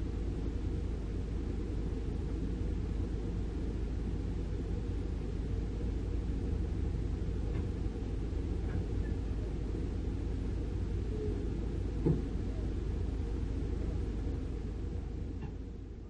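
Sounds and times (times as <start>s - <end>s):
diesel machinery low drone: 0.0s - 16.0s
short knock: 12.0s - 12.3s.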